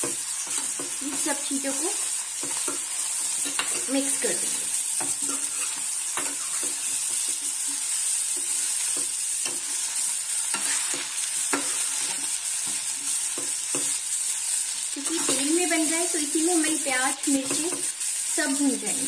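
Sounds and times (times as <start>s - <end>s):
metal spoon scraping a pan: 0.0s - 14.1s, 15.0s - 15.9s
vegetables sizzling in oil: 0.0s - 19.0s.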